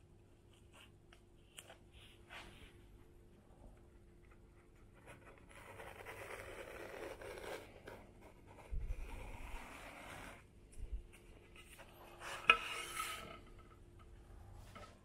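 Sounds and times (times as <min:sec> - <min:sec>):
pen scratching on paper: 0:05.0 - 0:10.4.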